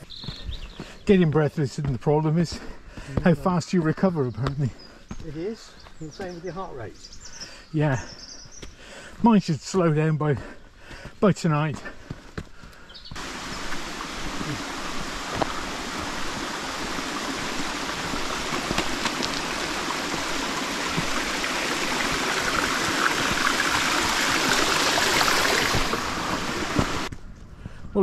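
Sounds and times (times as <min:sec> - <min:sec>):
stream running over stones: 0:13.1 - 0:27.1.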